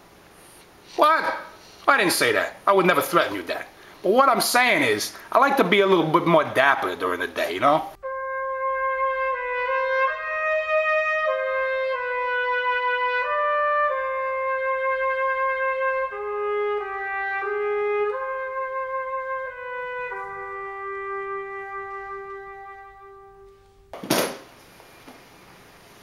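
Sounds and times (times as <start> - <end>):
solo trumpet melody: 6.5 - 23.9.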